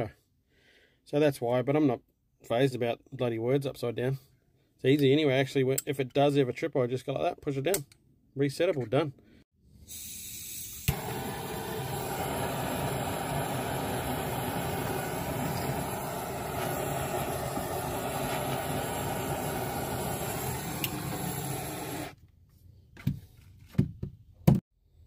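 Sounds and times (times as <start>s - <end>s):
mechanical rumble with hiss: 10.0s - 22.1s.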